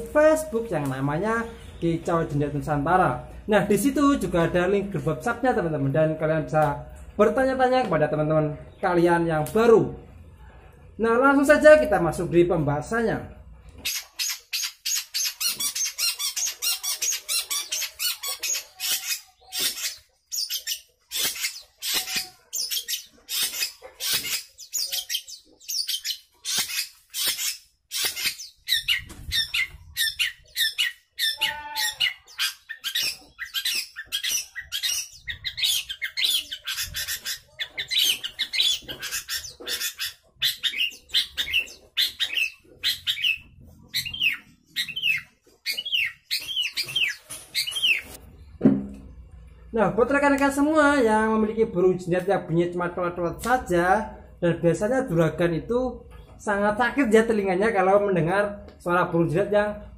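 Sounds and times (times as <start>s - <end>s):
bird calling with sharp notes: 13.8s - 48.2s.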